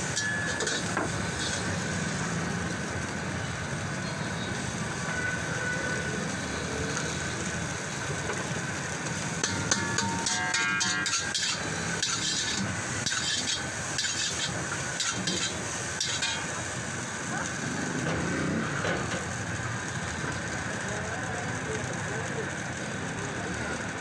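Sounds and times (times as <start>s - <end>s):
stir-fry sizzling in a wok: 0.0s - 24.0s
metal spatula scraping a pan: 0.1s - 1.7s, 9.3s - 16.6s.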